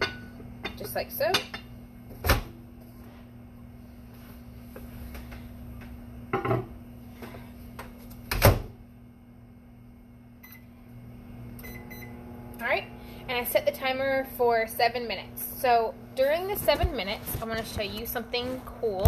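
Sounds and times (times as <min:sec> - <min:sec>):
microwave keypad beep: 0:10.4 - 0:10.7, 0:11.6 - 0:12.1.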